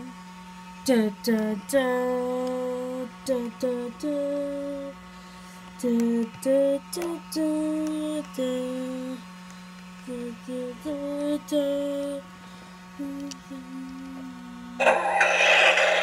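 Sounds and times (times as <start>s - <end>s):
steady low hum: 0.0s - 16.0s
person humming a tune: 0.8s - 5.0s, 5.8s - 9.2s, 10.0s - 12.2s, 13.0s - 15.0s.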